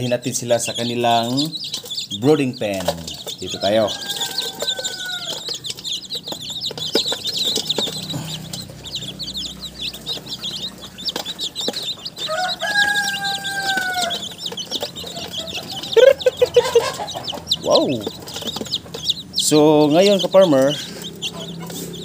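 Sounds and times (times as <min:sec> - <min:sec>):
chicks peeping: 0:00.0 - 0:22.0
rooster crowing: 0:03.4 - 0:05.7, 0:12.1 - 0:14.5.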